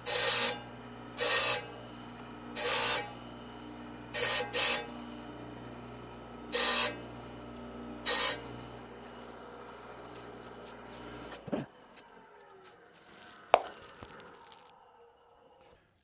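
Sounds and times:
saw teeth grinding on blade: 0:00.0 - 0:01.8, 0:02.5 - 0:03.2, 0:04.1 - 0:05.0, 0:06.4 - 0:07.2, 0:08.0 - 0:11.3
table saw humming: 0:00.0 - 0:11.7.

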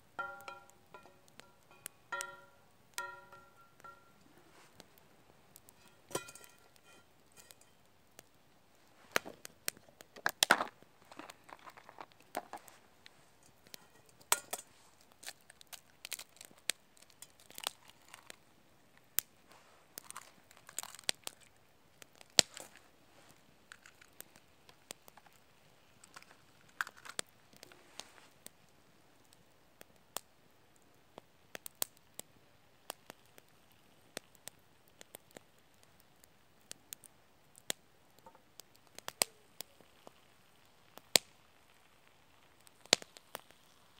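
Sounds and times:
campfire crackling and popping: 0:00.0 - 0:43.9
frying pan and utensils clinking: 0:00.2 - 0:04.2, 0:05.7 - 0:07.8, 0:13.4 - 0:14.7.

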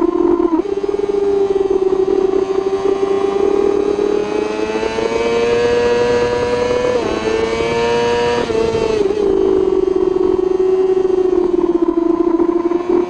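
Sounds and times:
motorcycle engine accelerating: 0:00.0 - 0:13.0.

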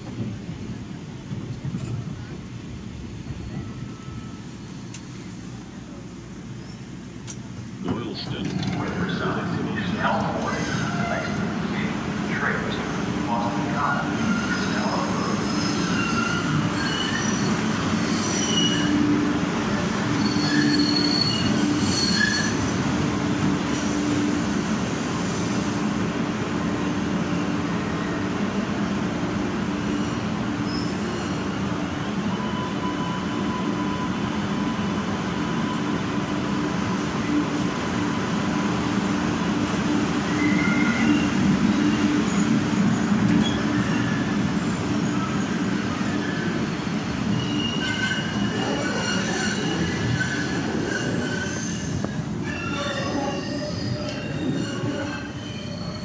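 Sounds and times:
subway train rumble: 0:00.0 - 0:56.0
metallic wheel squeals: 0:15.5 - 0:19.0, 0:20.2 - 0:22.6, 0:47.3 - 0:56.0.

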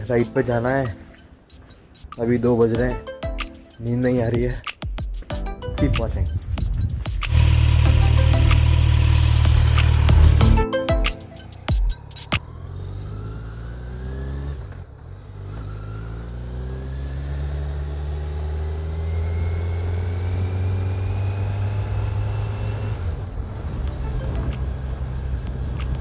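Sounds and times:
motorcycle engine accelerating: 0:07.3 - 0:10.6, 0:11.5 - 0:26.0.

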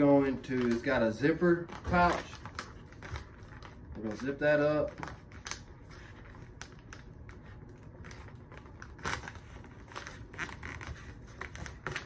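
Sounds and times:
pouch crackle: 0:00.0 - 0:12.0
foil pouch zipper clicking and crinkling: 0:08.0 - 0:12.0.

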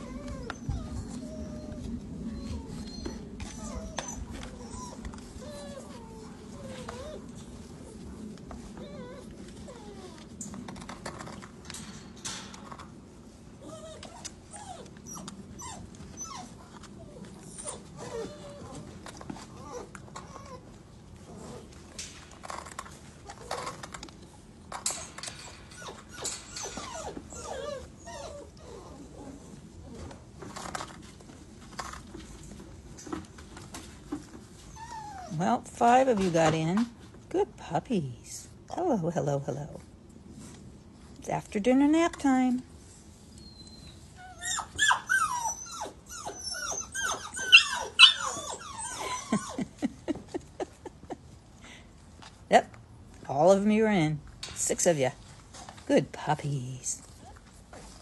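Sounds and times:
puppies whimpering: 0:00.0 - 0:08.0, 0:13.6 - 0:20.8, 0:24.9 - 0:29.5, 0:43.4 - 0:49.8.

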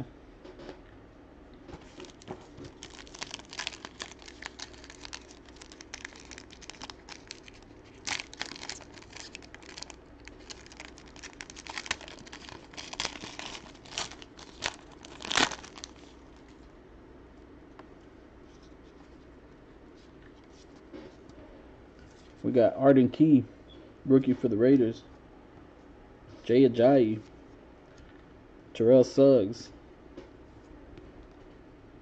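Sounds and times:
card packaging crinkling and tearing: 0:01.9 - 0:16.6.

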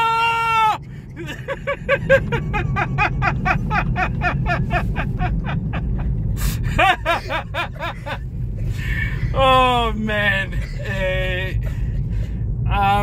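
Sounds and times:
man crying out in surprise: 0:00.0 - 0:05.9
road rumble inside car: 0:00.0 - 0:13.0
man laughing: 0:01.1 - 0:09.8, 0:10.5 - 0:11.8.

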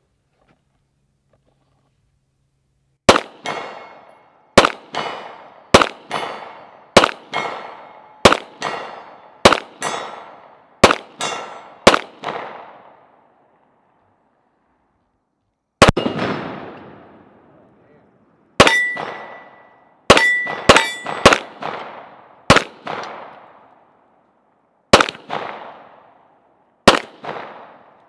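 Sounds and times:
pistol shots: 0:03.1 - 0:13.1, 0:15.8 - 0:17.2, 0:18.6 - 0:23.7, 0:24.9 - 0:26.2, 0:26.8 - 0:28.0.

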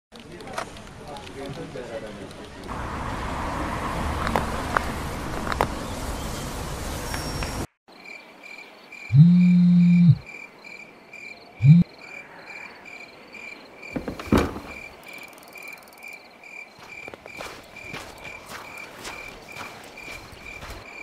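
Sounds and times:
crickets chirping: 0:07.9 - 0:21.0.

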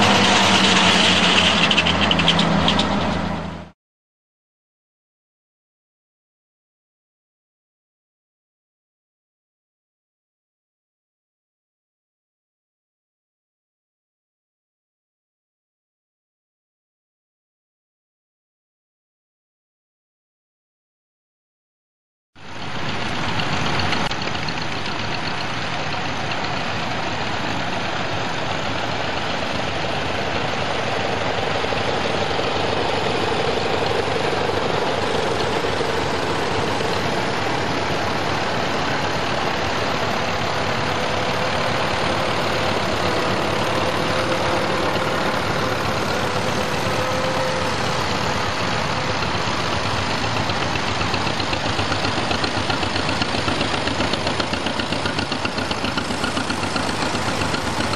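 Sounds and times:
tractor engines running: 0:00.0 - 0:03.8, 0:22.4 - 0:57.9
single tractor engine note: 0:22.4 - 0:57.9.

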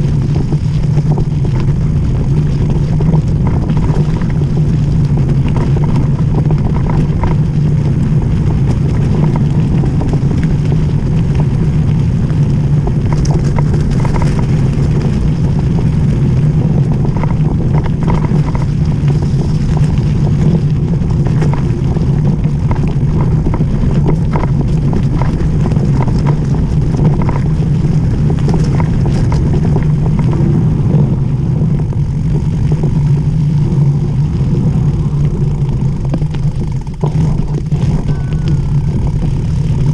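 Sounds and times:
stones and bike rattling: 0:00.0 - 0:39.9
tyres rumbling on track: 0:00.0 - 0:39.9
wind on camera: 0:00.0 - 0:39.9.

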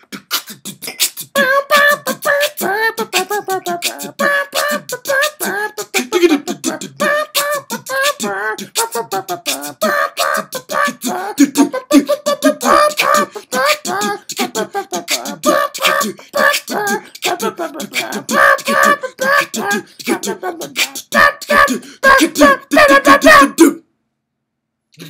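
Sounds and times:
beatboxing: 0:00.0 - 0:23.8.

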